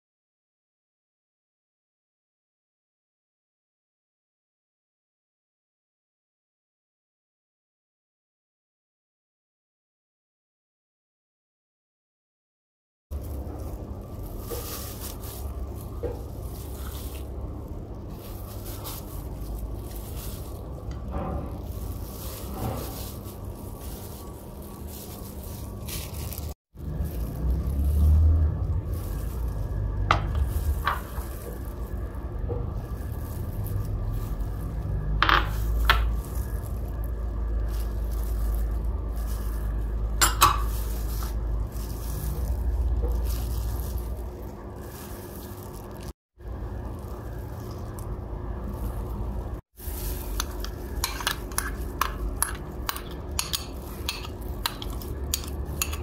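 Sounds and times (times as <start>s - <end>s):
plastic glove rustling and crinkling: 13.1s - 56.0s
steady low hum: 13.1s - 56.0s
glass bowls clinking: 40.2s - 40.9s, 50.4s - 56.0s.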